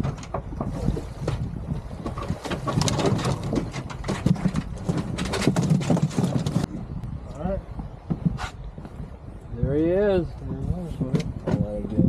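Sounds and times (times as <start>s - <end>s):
river water: 0.0s - 5.2s
wind rumbling on microphone: 0.0s - 12.0s.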